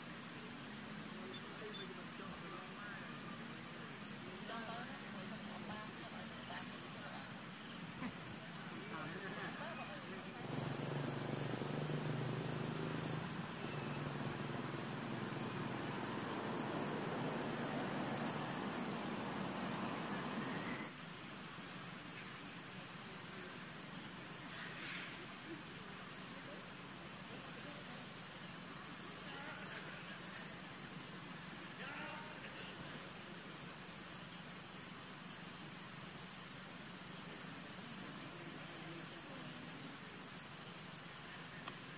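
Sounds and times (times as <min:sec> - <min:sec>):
insects trilling: 0:00.0 - 0:41.9
rough hiss: 0:06.5 - 0:38.4.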